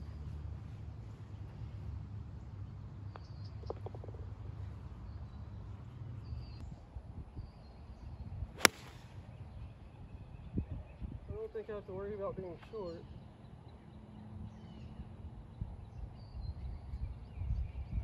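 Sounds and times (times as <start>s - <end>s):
golf club striking ball: 8.6s - 9.1s.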